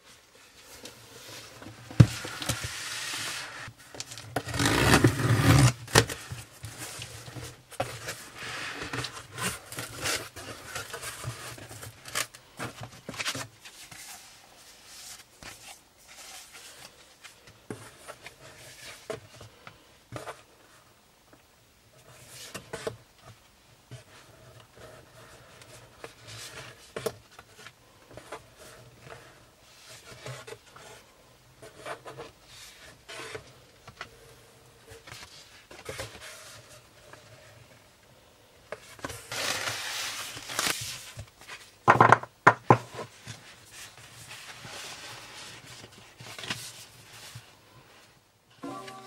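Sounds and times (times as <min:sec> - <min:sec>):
cardboard flaps scraping: 0:00.7 - 0:17.0, 0:38.8 - 0:41.7
paper wrapping rustling: 0:38.8 - 0:41.8.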